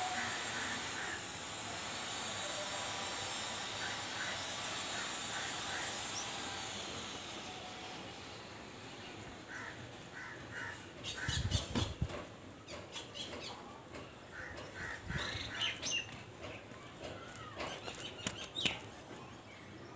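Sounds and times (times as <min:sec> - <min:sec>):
birds squawking: 0:09.4 - 0:12.0, 0:14.3 - 0:16.1.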